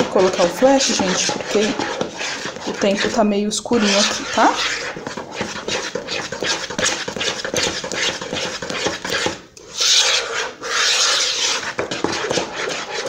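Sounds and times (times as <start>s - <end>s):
spoon scraping plastic bowl: 0.0s - 13.0s.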